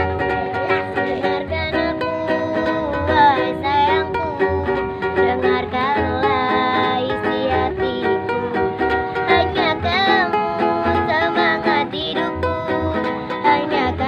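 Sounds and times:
low pulsing beat: 0.0 - 6.6
girl singing pop song: 0.0 - 14.0
strummed ukulele: 0.0 - 14.0.

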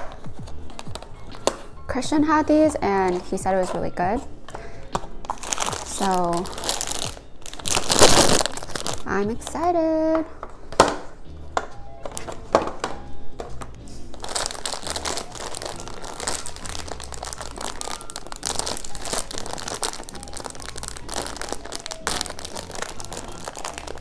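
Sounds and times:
plastic snack pouch rustling: 5.3 - 9.1, 14.1 - 24.0.

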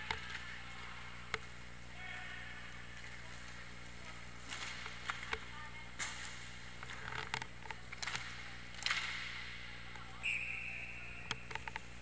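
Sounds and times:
hockey sticks and puck clacking: 0.0 - 1.5, 3.0 - 10.1
referee whistle: 10.2 - 11.3.

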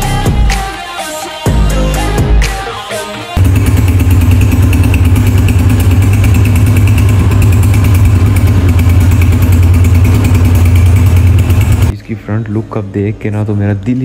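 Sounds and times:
music: 0.0 - 3.4
motorcycle engine idling: 3.4 - 11.9.

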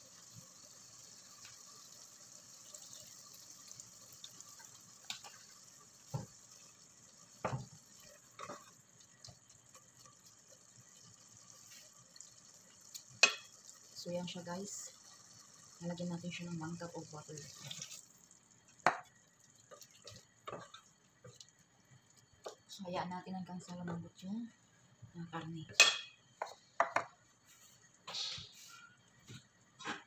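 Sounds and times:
faint steady hiss: 0.0 - 30.0
wooden spoon stirring in a pot: 3.8 - 15.2, 16.4 - 24.0
spoon knocking against pot: 25.7 - 27.1.

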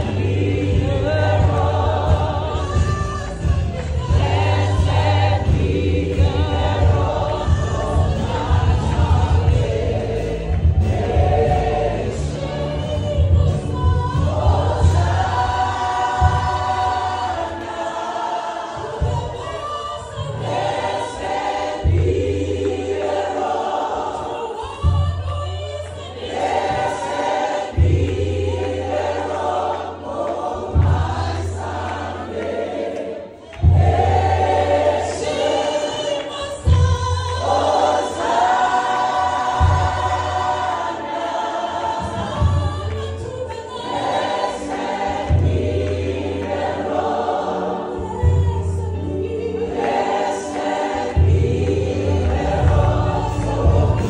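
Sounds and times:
band with low bass notes: 0.0 - 17.3, 48.0 - 54.0
congregation and choir singing: 0.0 - 54.0.

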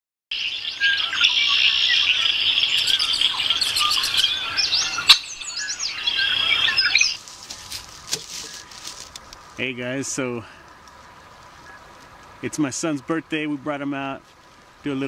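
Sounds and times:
birds chirping and calling: 0.3 - 9.2.

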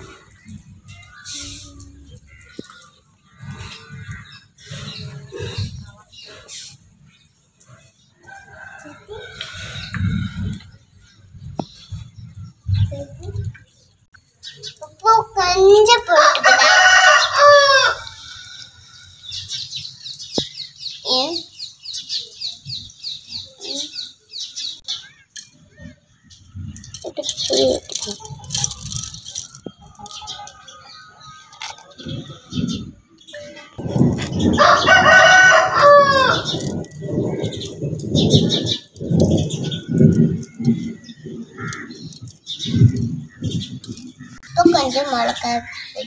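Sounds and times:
rooster crowing: 16.2 - 18.2, 34.5 - 36.6
faint small birds chirping: 17.2 - 34.5.

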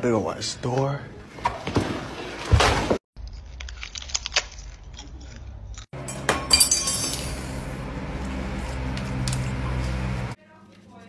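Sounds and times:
seaweed sheet crunching when bitten: 3.2 - 5.9
hard objects clinking and clattering: 3.5 - 7.6.

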